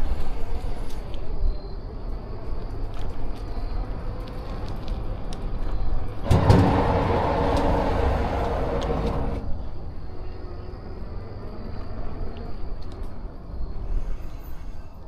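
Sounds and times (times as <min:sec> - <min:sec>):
vehicle low rumble: 0:00.0 - 0:15.0
loud rushing noise: 0:06.2 - 0:09.6.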